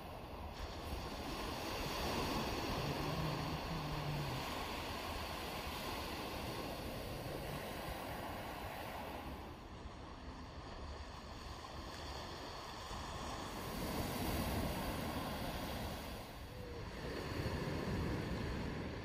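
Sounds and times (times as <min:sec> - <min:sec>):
sea surf: 0:00.0 - 0:19.0
wind: 0:00.0 - 0:19.0.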